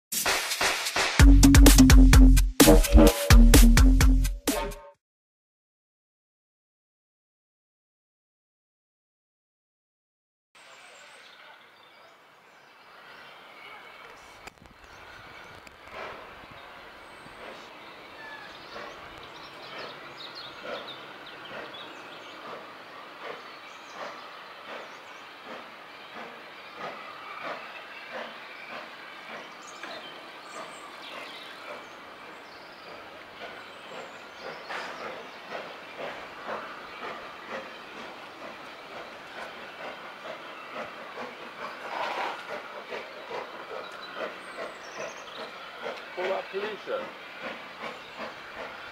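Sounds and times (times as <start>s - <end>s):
steam hiss: 0.1s - 1.2s, 14.2s - 48.9s
small birds chirping: 10.7s - 48.9s
steam locomotive exhaust beats: 14.9s - 48.9s.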